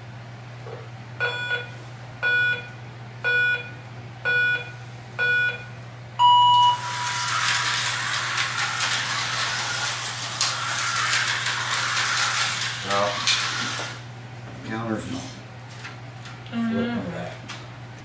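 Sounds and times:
short countdown beeps: 1.2 - 6.8
long low beep: 3.3 - 6.8
slot car motors whirring: 6.2 - 14.1.

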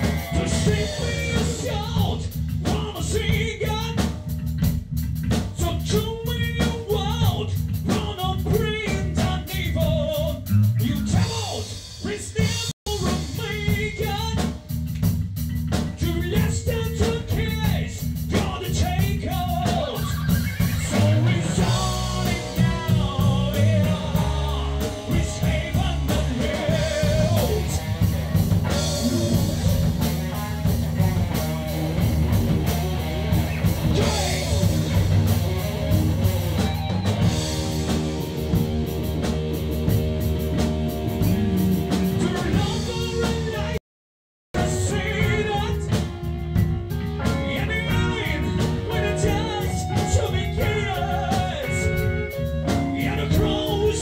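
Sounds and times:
man singing into a microphone: 0.0 - 4.1, 5.6 - 14.5, 16.0 - 20.2, 20.8 - 27.8, 33.9 - 34.9, 42.1 - 43.8, 44.6 - 46.1, 47.2 - 54.0
rock band playing: 0.0 - 43.8, 44.6 - 54.0.

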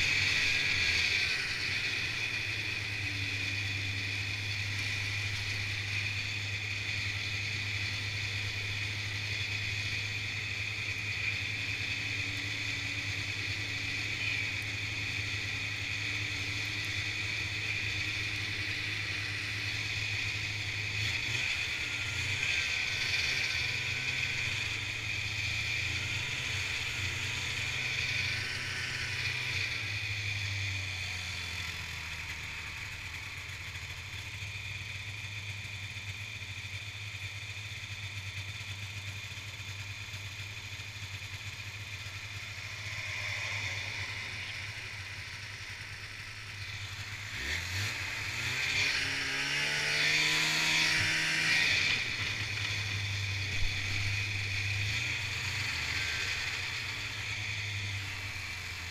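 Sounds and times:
snowmobile engine running: 0.0 - 34.5, 36.6 - 58.9.

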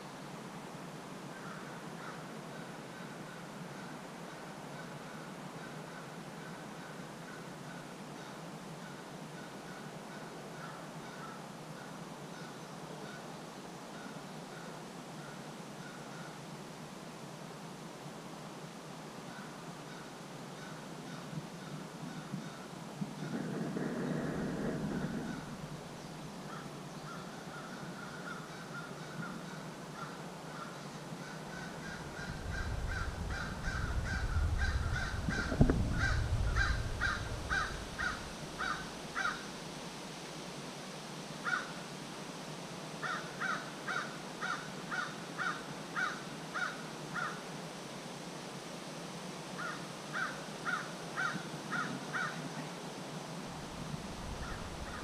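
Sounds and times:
crow cawing: 1.3 - 2.3, 8.9 - 11.4, 19.3 - 25.7, 26.5 - 39.5, 41.4 - 41.8, 43.0 - 47.4, 49.6 - 52.4, 54.0 - 55.0
low rumble: 23.0 - 25.9, 31.8 - 39.1.

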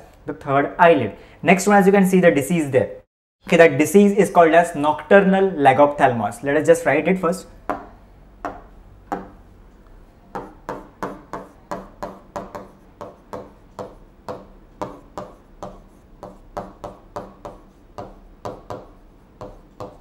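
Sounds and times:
pen tapping and scraping on screen: 10.3 - 20.0.

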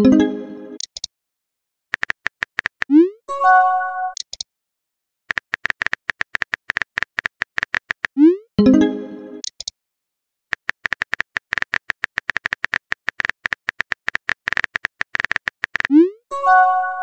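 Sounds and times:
phone keyboard typing clicks: 2.0 - 2.9, 5.3 - 8.2, 10.5 - 16.0.

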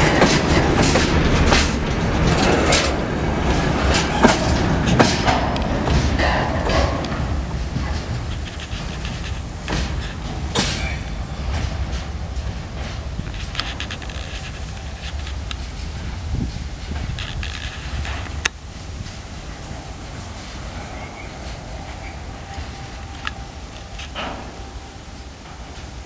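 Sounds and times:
sharp clicks and knocks: 0.0 - 15.7
freight wagons rumbling over rails: 0.0 - 26.0.

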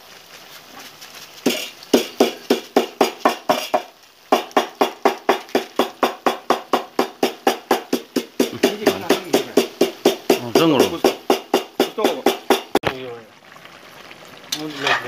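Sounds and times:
music with percussion beat: 1.5 - 12.8.

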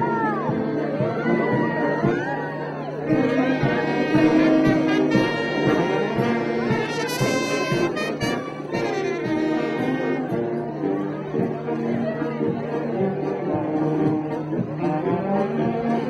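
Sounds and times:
marching brass band playing: 0.0 - 2.3, 3.0 - 16.0.

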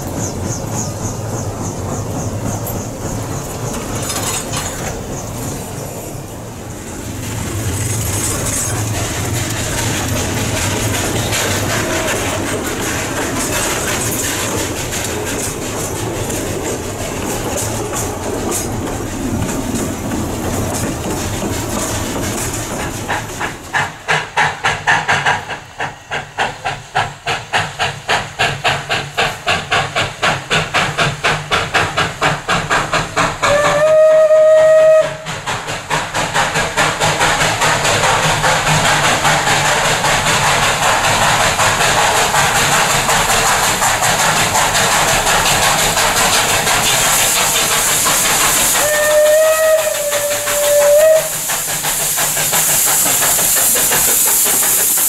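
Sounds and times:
steam locomotive chuffing: 0.0 - 55.0
train rumbling: 0.0 - 55.0
steam whistle blast: 33.5 - 35.3, 48.8 - 51.4.

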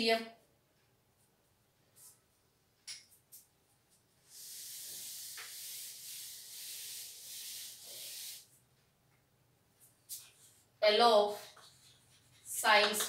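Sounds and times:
duster wiping chalkboard: 4.2 - 8.5, 11.4 - 13.0.

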